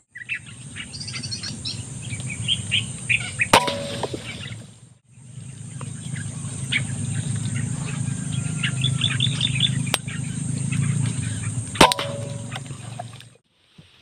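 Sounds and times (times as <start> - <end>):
small birds chirping: 0.0 - 13.4
steady low rumble: 0.4 - 13.4
air rifle shot: 11.8 - 12.9.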